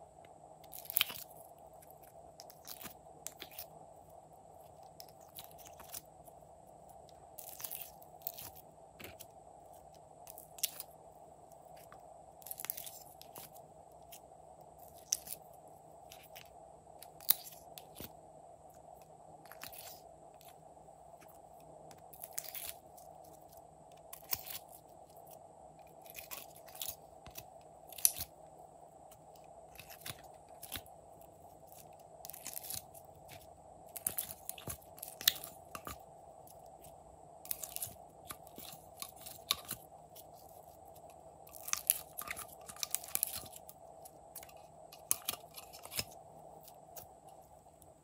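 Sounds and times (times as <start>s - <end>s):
faint steady hum: 0.0s - 48.0s
slime sticky crackles: 0.7s - 3.8s, 4.6s - 6.1s, 7.4s - 10.9s, 11.8s - 14.2s, 14.8s - 15.5s, 21.9s - 28.3s, 29.7s - 36.9s, 37.5s - 47.2s.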